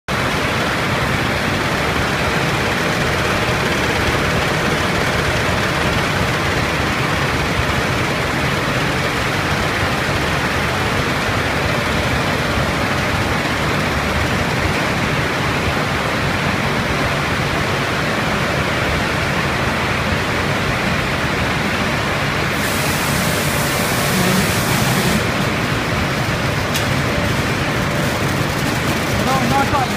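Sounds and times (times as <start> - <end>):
conveyor belts and motors running: 0.1 - 29.9
high hiss: 22.6 - 25.4.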